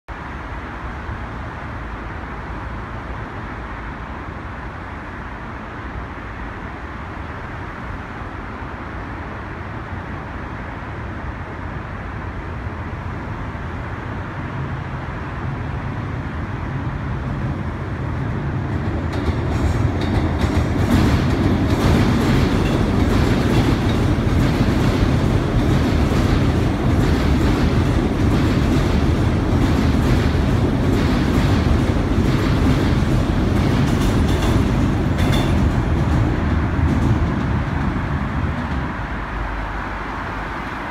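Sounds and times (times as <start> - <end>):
train rumbling over bridge: 0.1 - 40.9
wheels clicking over rails: 18.7 - 39.0.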